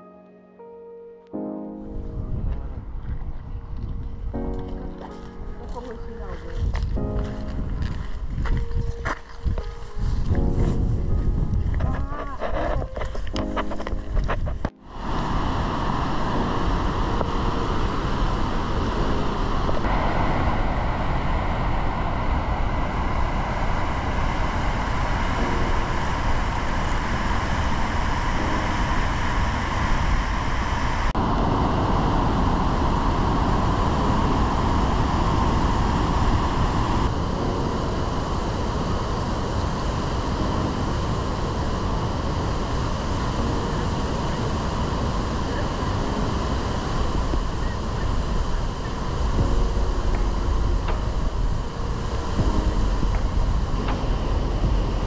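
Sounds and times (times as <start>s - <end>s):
waterfall roar: 14.9s - 55.0s.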